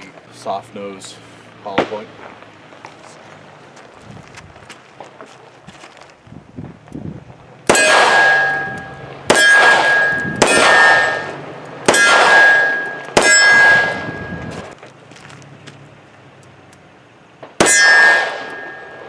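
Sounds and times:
steel target ringing clang: 7.7 - 14.7, 17.6 - 19.0.

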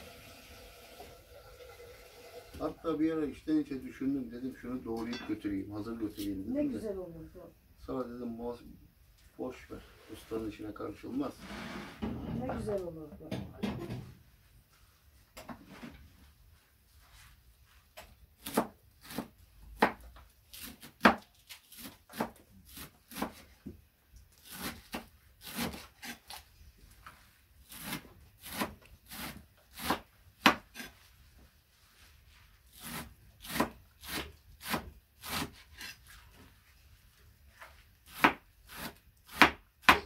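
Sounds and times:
knife chopping on board: 18.4 - 23.8, 27.8 - 30.9, 32.8 - 35.9, 38.1 - 40.0.

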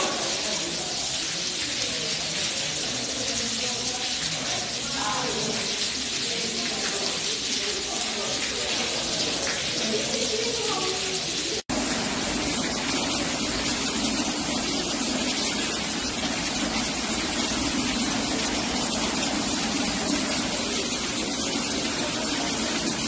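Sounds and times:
rainwater pouring and splashing: 0.0 - 23.0.

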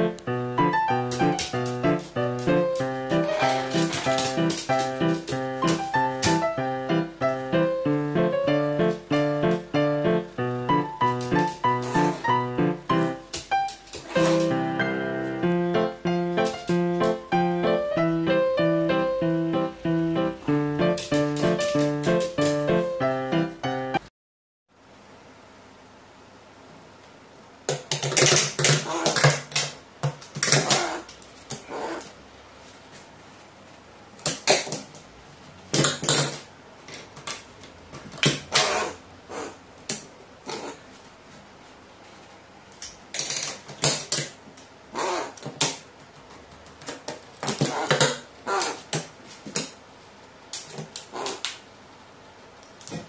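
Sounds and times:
crow calling: 38.5 - 39.6, 44.9 - 45.4, 47.6 - 48.8, 51.1 - 51.4.

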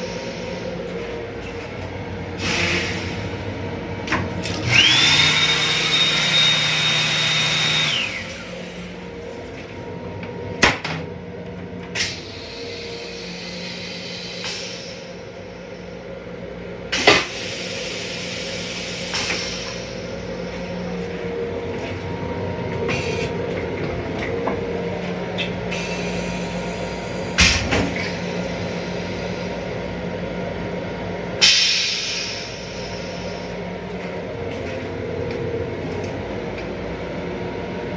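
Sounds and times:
railcar hum: 0.0 - 37.9.

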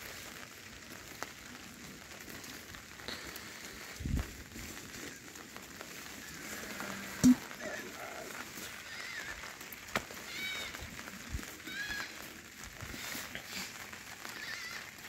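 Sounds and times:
goats bleating: 6.2 - 15.0.

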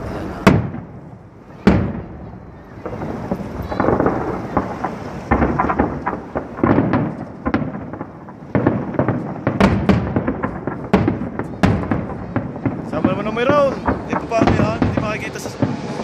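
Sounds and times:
firework shells bursting: 0.4 - 16.0.

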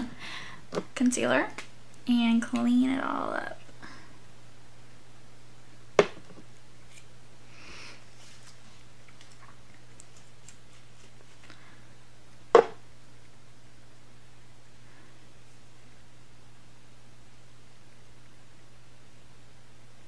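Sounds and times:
steady low hum: 0.0 - 20.0
sharp knocks: 6.0 - 6.3, 12.5 - 12.8
faint small clicks and rustles: 8.2 - 11.6.

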